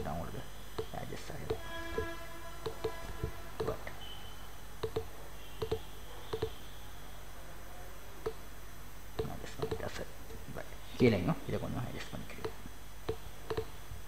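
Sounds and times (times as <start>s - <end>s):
low background hum: 0.0s - 14.0s
computer mouse buttons clicking: 0.8s - 3.8s, 4.8s - 6.6s, 9.2s - 9.9s, 12.4s - 13.7s.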